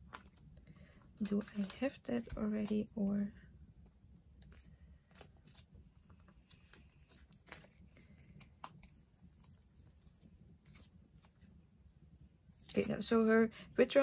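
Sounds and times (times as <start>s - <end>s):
plastic sleeves clicking and rustling: 0.0s - 3.0s, 3.8s - 11.4s.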